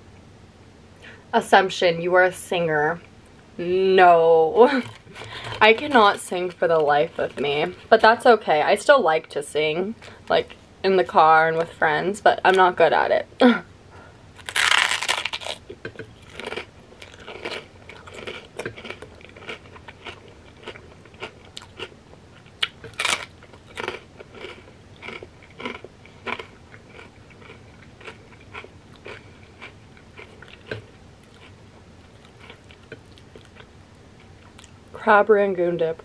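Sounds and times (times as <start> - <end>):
crunching and chewing chip: 14.4 - 33.7.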